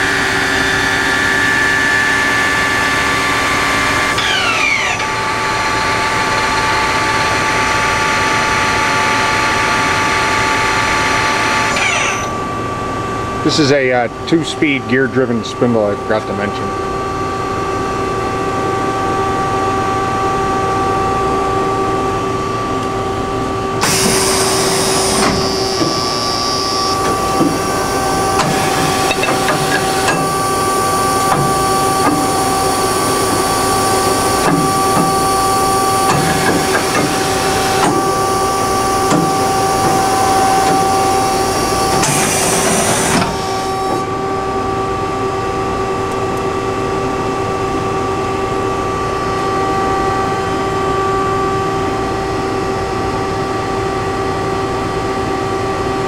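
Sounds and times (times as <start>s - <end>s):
machine hum: 0.0s - 56.0s
loud pneumatic hiss: 23.8s - 26.0s, 42.0s - 43.7s
machine clunks: 28.4s - 30.4s.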